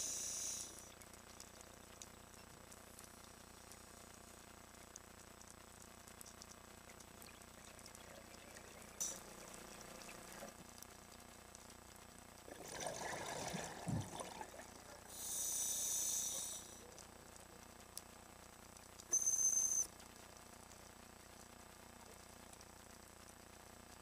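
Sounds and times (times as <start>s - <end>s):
regulator inhalation hiss: 0.0s - 0.9s, 15.1s - 16.8s
exhaled bubbles gurgling: 6.8s - 10.6s, 12.4s - 15.2s.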